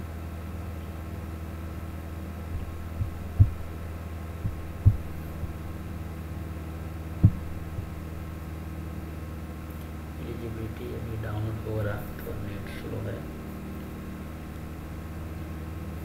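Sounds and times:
low electrical hum with tones: 0:00.0 - 0:16.0
dull low thumps: 0:02.4 - 0:06.1, 0:07.1 - 0:08.3.

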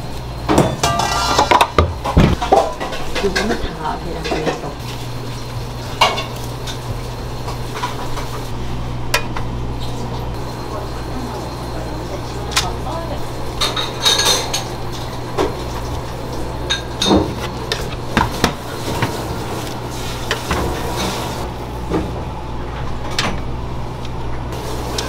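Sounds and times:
utensils and pans clinking: 0:00.5 - 0:08.5, 0:10.7 - 0:22.0.

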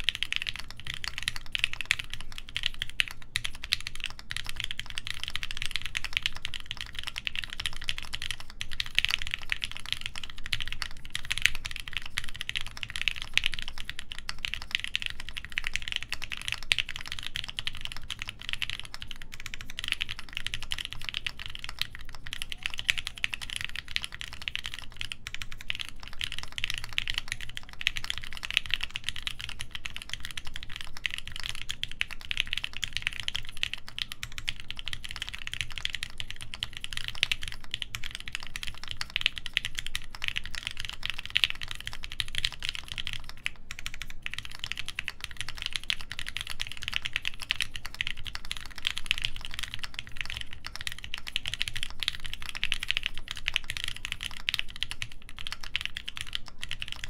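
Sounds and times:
fast mechanical keyboard typing: 0:00.0 - 0:57.0.

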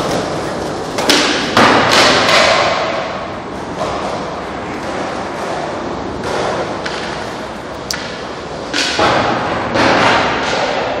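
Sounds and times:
skateboard clacks on concrete: 0:00.0 - 0:03.1
skateboard wheels rolling on concrete: 0:00.0 - 0:11.0.

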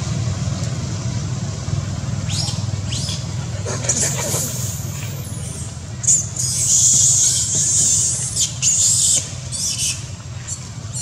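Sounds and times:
monkeys screaming and squealing: 0:02.3 - 0:11.0.

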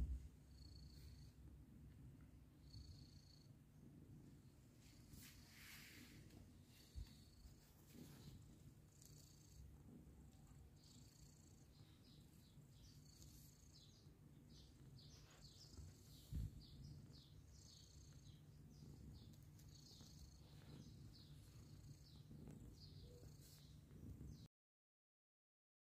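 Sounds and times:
cat purring: 0:00.0 - 0:24.5
kittens chirping: 0:11.6 - 0:24.5.

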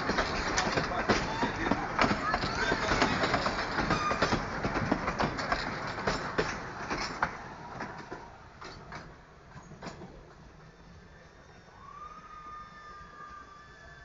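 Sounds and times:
train wheels clattering over rail joints: 0:00.0 - 0:10.4.

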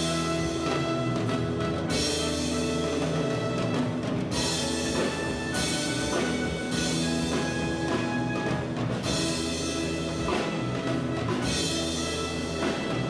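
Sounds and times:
drums and percussion: 0:00.0 - 0:13.0
orchestra playing held chords: 0:00.0 - 0:13.0.

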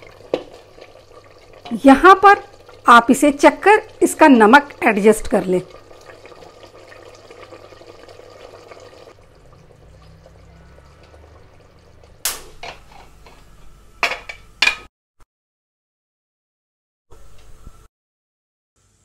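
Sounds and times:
curry bubbling in a pot: 0:00.0 - 0:12.2.

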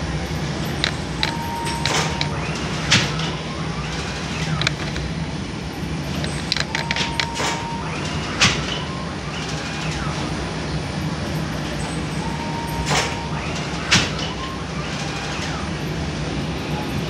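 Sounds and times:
machinery humming: 0:00.0 - 0:17.0
metal clicks and knocks: 0:00.7 - 0:03.3, 0:04.5 - 0:05.2, 0:06.2 - 0:07.6.

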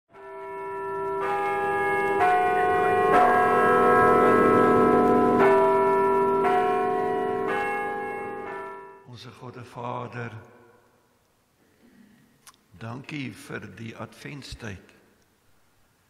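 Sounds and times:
church bells ringing: 0:00.1 - 0:09.1.

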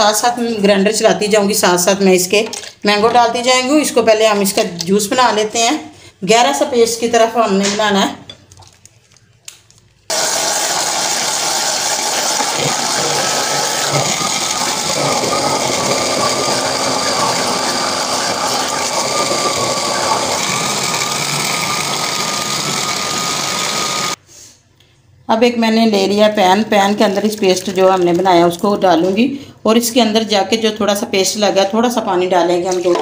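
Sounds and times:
mixer grinder blending: 0:10.1 - 0:24.2.

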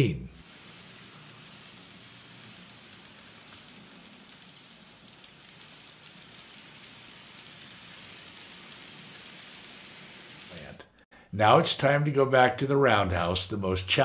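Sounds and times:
model train running on track: 0:00.4 - 0:10.6.

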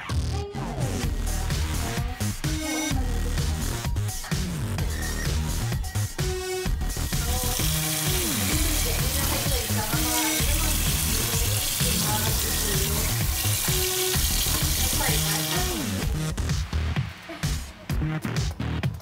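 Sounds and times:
electronic background music: 0:00.0 - 0:19.0
tap water running into bowl: 0:07.2 - 0:16.0.

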